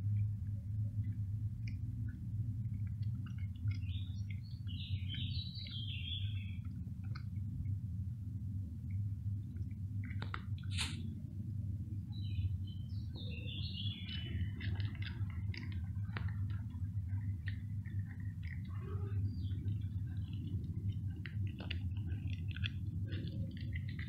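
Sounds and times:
low background rumble: 0.0 - 24.0
cat crunching dry kibble: 0.9 - 11.1, 13.9 - 24.0
bird chirping: 3.6 - 6.7, 12.1 - 14.8.

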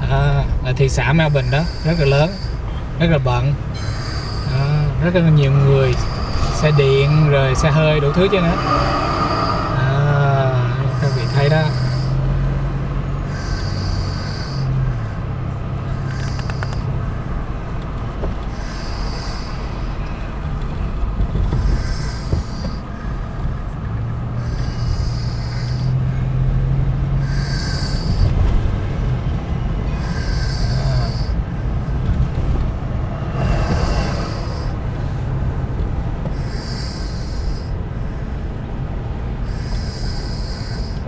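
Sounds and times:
car road and engine noise: 0.0 - 41.0
low hum: 3.7 - 13.1.

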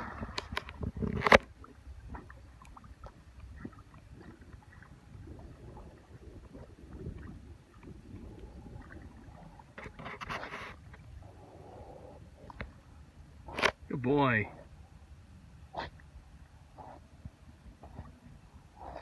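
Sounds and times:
wind rumble on microphone: 0.0 - 12.8
dog paddling in water: 0.0 - 13.6.

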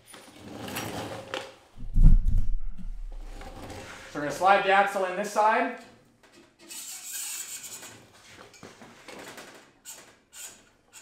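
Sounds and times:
metal scraping on metal: 6.6 - 8.1.

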